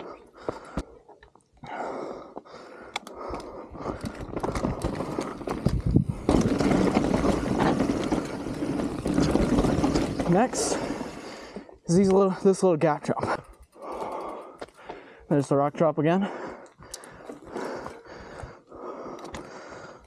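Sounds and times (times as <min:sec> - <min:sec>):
bike clicks and rattles: 0:02.3 - 0:20.0
tyre and riding noise rush: 0:03.2 - 0:12.3.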